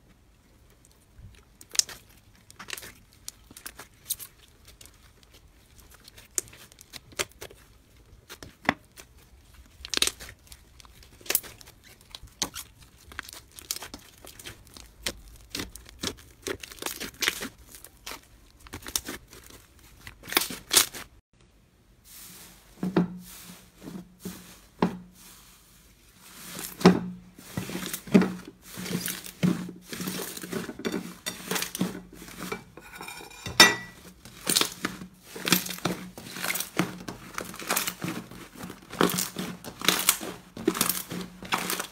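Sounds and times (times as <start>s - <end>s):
slime crackling and popping: 0.7s - 21.2s, 34.2s - 41.9s.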